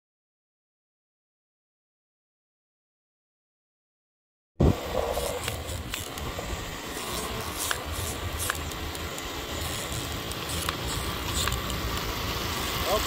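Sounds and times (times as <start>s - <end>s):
scooter engine rumbling: 4.6s - 13.0s.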